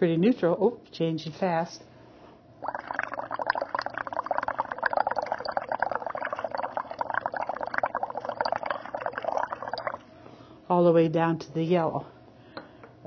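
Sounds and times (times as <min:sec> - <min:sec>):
breath bubbling through liquid: 0:02.6 - 0:10.1.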